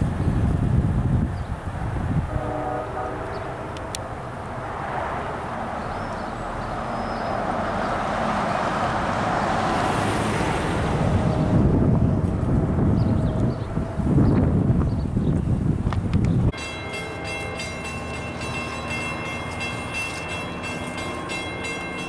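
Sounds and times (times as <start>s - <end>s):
distant car horn: 2.3s - 4.0s
pickup truck driving past: 4.7s - 12.0s.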